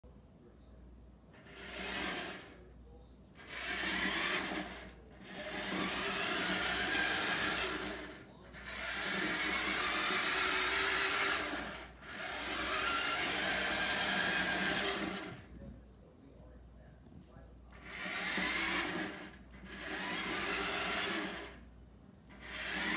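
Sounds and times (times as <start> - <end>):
toy motor whirring: 1.4 - 2.6, 3.4 - 15.4, 17.7 - 21.6, 22.3 - 22.9.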